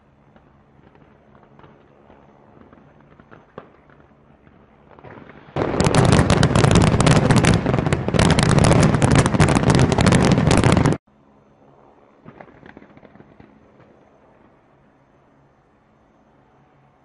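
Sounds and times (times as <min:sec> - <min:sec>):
fireworks crackling: 0:00.4 - 0:11.0.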